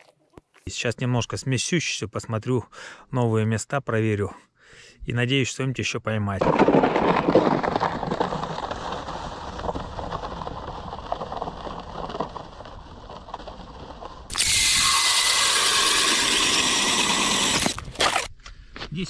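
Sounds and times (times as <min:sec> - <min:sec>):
plastic sled scraping over ice: 0:06.4 - 0:18.3
drill turning ice auger: 0:08.1 - 0:18.3.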